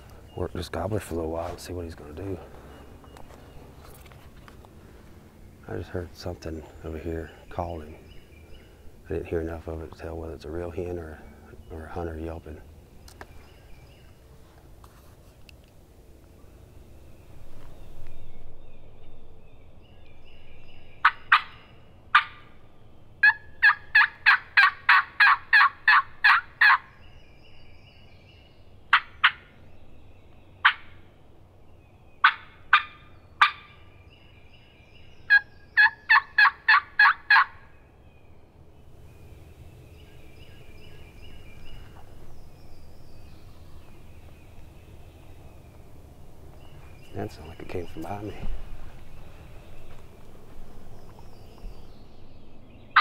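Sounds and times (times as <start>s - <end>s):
turkey call yelps: 21.0s - 22.5s, 23.2s - 26.9s, 28.9s - 29.5s, 30.6s - 31.0s, 32.2s - 33.8s, 35.3s - 37.6s.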